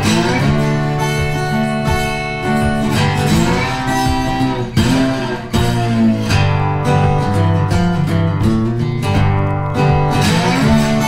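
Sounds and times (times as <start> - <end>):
acoustic guitar playing: 0.0 - 11.0.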